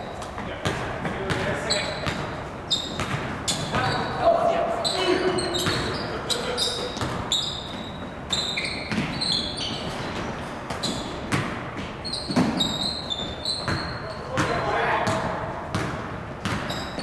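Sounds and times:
sneakers squeaking on floor: 0:00.0 - 0:17.0
basketball bouncing: 0:00.3 - 0:04.0, 0:05.5 - 0:06.0, 0:06.9 - 0:09.3, 0:10.1 - 0:17.0.

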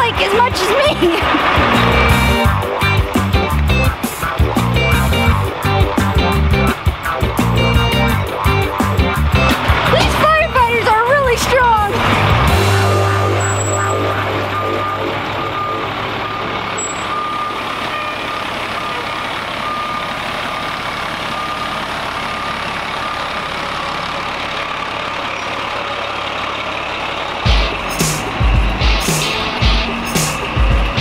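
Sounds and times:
diesel engine running: 0:00.0 - 0:31.0
reverse alarm beeping: 0:12.1 - 0:20.4, 0:21.2 - 0:23.5.

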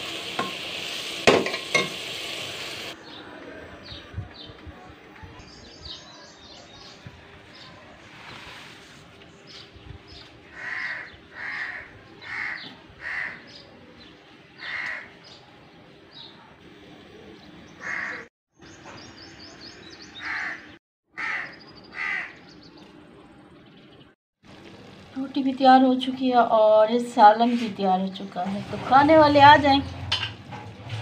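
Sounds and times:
bird harsh calls: 0:10.5 - 0:13.7, 0:14.6 - 0:15.4, 0:17.8 - 0:22.8.

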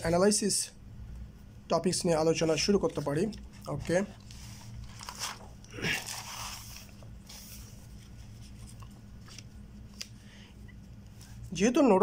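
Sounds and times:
notebook pages flipping: 0:02.6 - 0:10.2.

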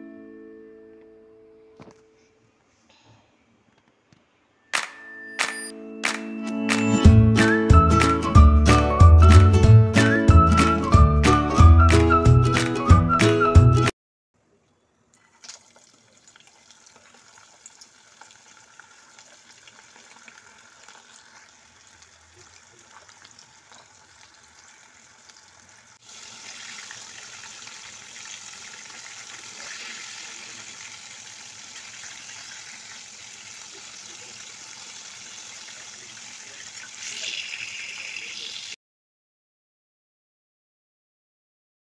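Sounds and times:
oil popping: 0:15.1 - 0:38.4
meat sizzling in oil: 0:23.4 - 0:38.8.

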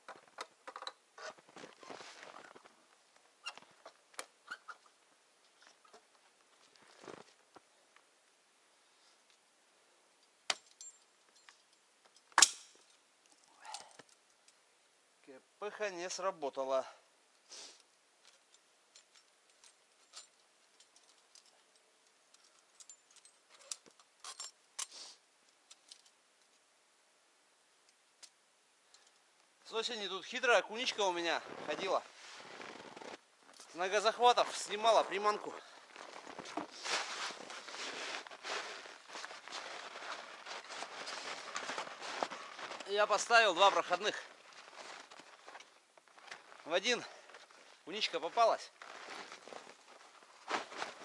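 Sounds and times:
steel trap metallic clinks: 0:10.5 - 0:11.8
scraping: 0:34.4 - 0:43.2.

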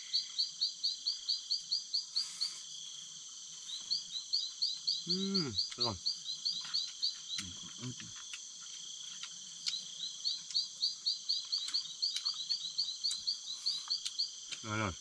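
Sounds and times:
fast chirping call: 0:09.6 - 0:15.0.

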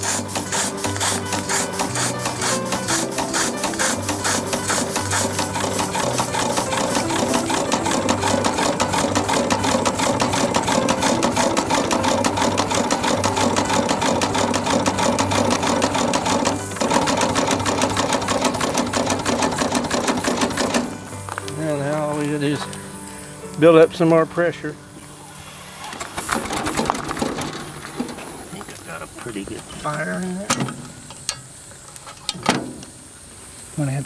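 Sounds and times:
steam engine exhaust beats clattering: 0:00.0 - 0:21.4
steady hiss of leaking steam: 0:00.0 - 0:23.8, 0:27.7 - 0:30.4, 0:31.0 - 0:34.0.

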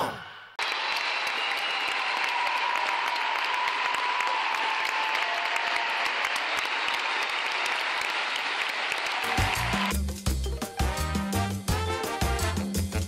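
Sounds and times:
audience applauding: 0:00.6 - 0:10.0
music: 0:08.8 - 0:13.0.

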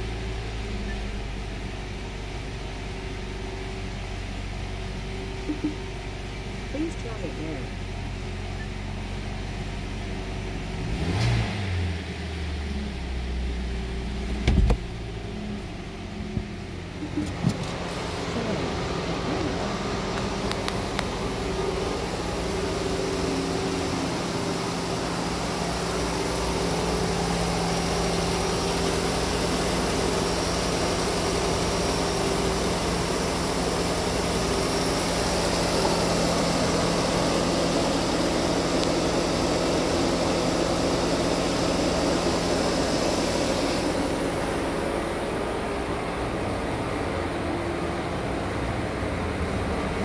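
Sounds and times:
car engine idling: 0:00.0 - 0:50.0.

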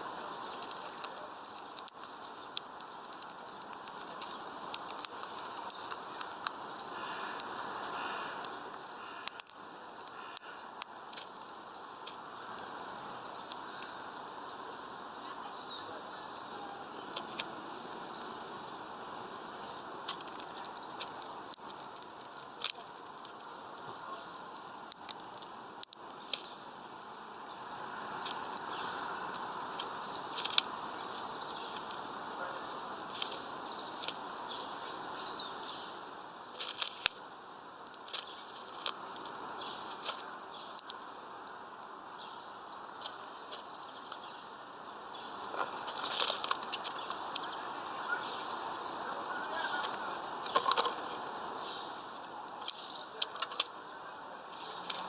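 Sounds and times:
birds cracking seeds: 0:00.0 - 0:55.0
rustles and wing flutters: 0:45.3 - 0:55.0.

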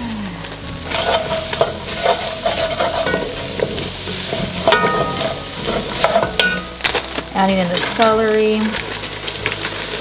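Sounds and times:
vegetables sizzling in oil: 0:00.0 - 0:10.0
wooden spoon scraping a pot: 0:00.9 - 0:07.0.

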